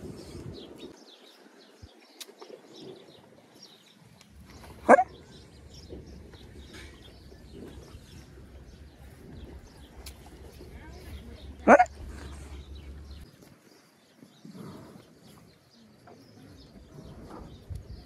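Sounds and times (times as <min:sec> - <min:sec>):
birds chirping: 0:00.0 - 0:18.0
dog barking: 0:04.8 - 0:05.1, 0:11.6 - 0:12.0.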